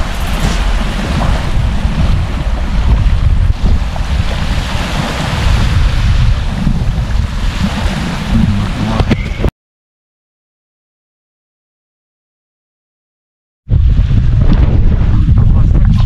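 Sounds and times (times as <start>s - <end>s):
small waves washing on sand: 0.0s - 9.0s
wind buffeting microphone: 0.0s - 9.5s, 13.7s - 16.0s.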